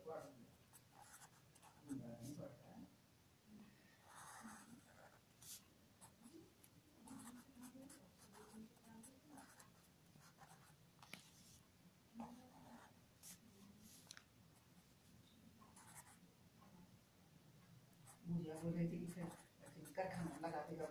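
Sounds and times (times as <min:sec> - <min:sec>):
pen scratching on paper: 0:00.2 - 0:02.4, 0:04.0 - 0:06.4, 0:07.0 - 0:11.6, 0:12.2 - 0:14.1, 0:15.7 - 0:16.2, 0:18.0 - 0:20.9.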